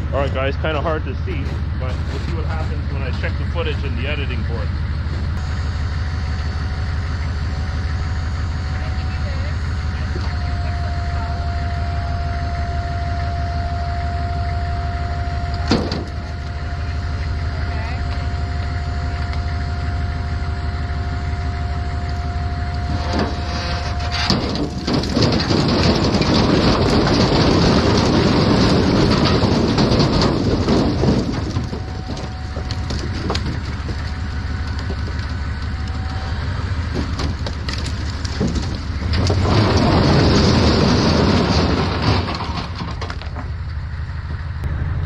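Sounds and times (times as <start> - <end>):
truck engine idling: 0.0 - 45.0
logs clattering onto ground: 14.6 - 43.8.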